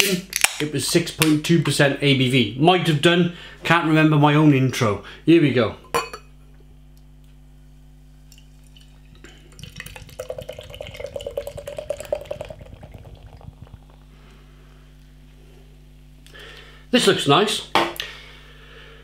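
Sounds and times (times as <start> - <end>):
beer pouring into glass: 8.3 - 14.1.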